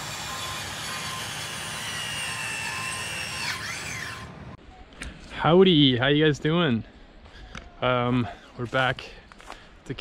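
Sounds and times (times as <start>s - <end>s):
electric tool motor whining: 0.0s - 4.6s.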